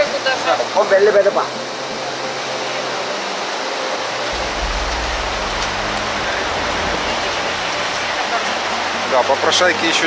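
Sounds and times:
steady rushing outdoor noise: 0.0 - 10.0
low rumble: 4.3 - 8.9.

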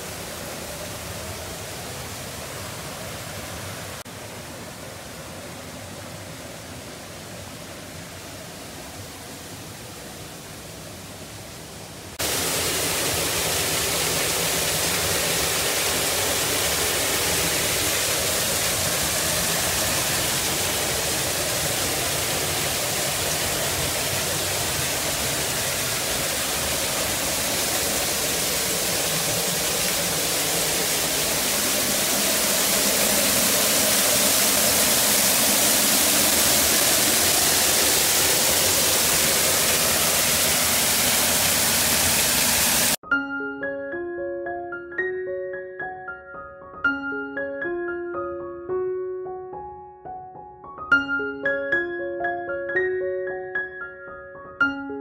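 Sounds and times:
waterfall rushing: 0.0 - 43.0.

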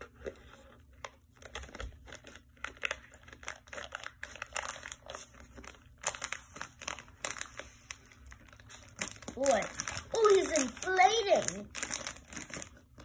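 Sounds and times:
thin plastic crinkling: 0.0 - 13.0
scissors cutting plastic bag: 8.5 - 12.8.

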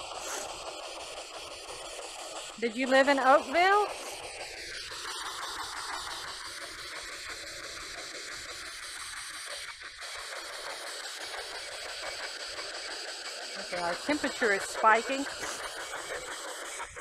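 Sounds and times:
radio static hiss: 2.7 - 4.3, 13.6 - 15.8.

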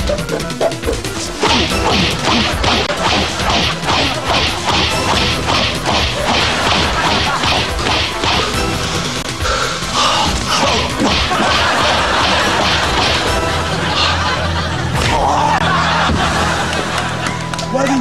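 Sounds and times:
background music: 0.0 - 18.0
comic face slap effects: 0.1 - 9.3, 10.2 - 13.6.

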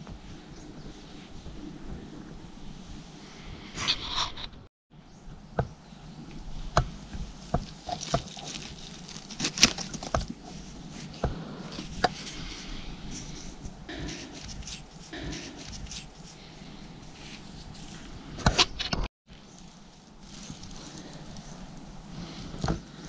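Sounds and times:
dry forest floor rustling: 5.9 - 18.3, 19.3 - 23.0
twigs snapping: 7.6 - 10.4.

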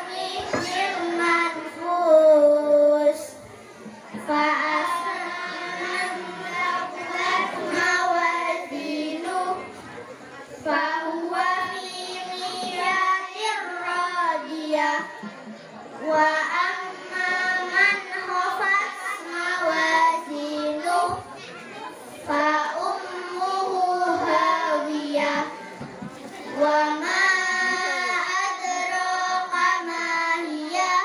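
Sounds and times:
children chanting through microphones: 0.0 - 31.0.

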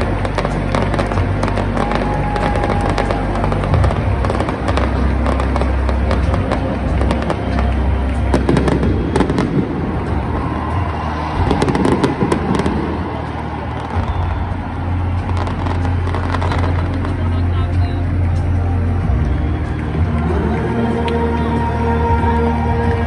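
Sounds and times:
fireworks cracking and banging: 0.0 - 20.2
bass-heavy music: 0.0 - 23.0.

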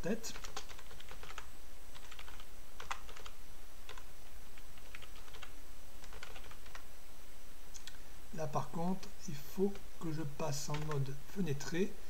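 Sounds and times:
typing on a computer keyboard: 0.3 - 4.1, 4.8 - 6.8, 10.7 - 11.1.

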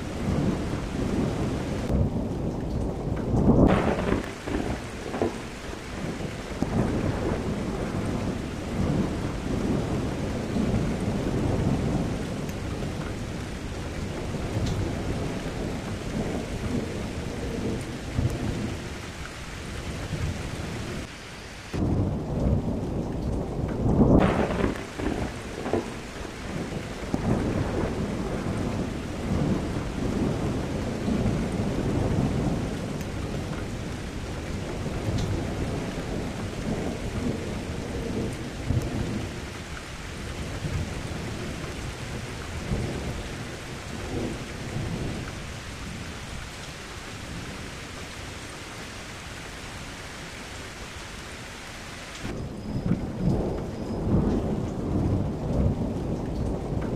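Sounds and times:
loud thunderclap: 0.0 - 19.0, 21.8 - 46.5
rolling thunder: 0.0 - 51.1, 52.2 - 56.9
steady rain: 0.0 - 56.9.

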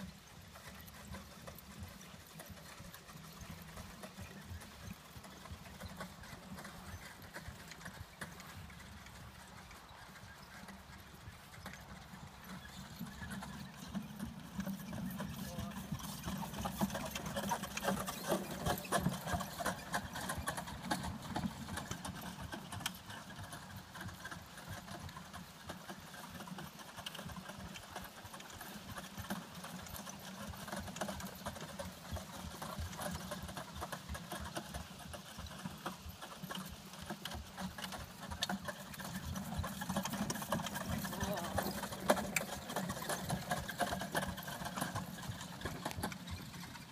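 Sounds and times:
horse hoofbeats on grass: 0.0 - 46.9.

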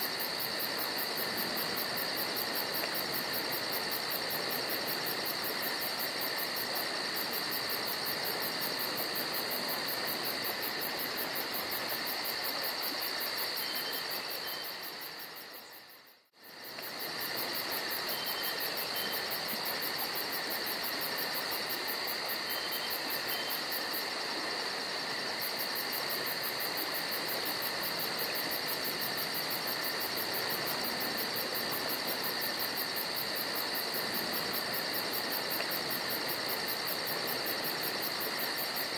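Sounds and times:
background hiss: 0.0 - 38.9
crickets trilling: 0.0 - 38.9.

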